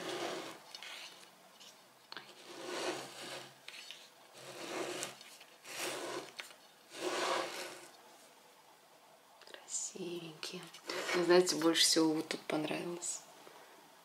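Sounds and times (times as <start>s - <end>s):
plate scraping on wooden table: 0.0s - 1.1s, 2.3s - 7.9s.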